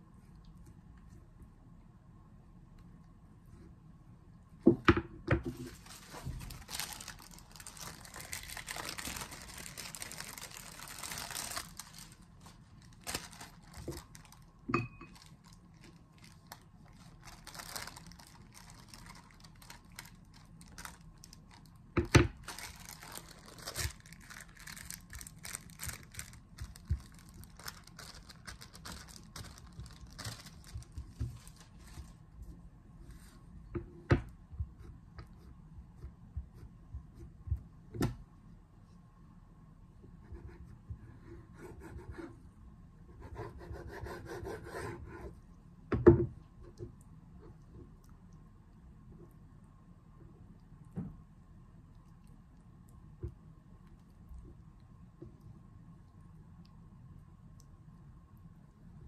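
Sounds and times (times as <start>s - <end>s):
plastic sheet crinkling: 5.6s - 32.2s.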